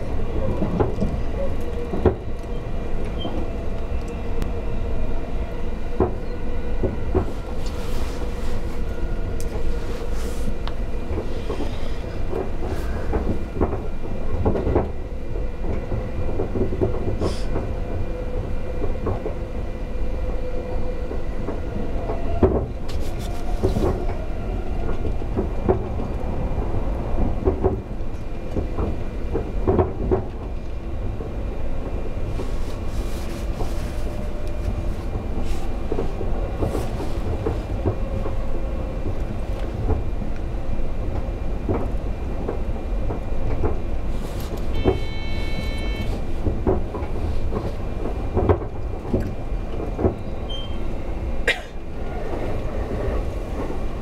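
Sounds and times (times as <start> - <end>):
train running at speed: 0.0 - 54.0.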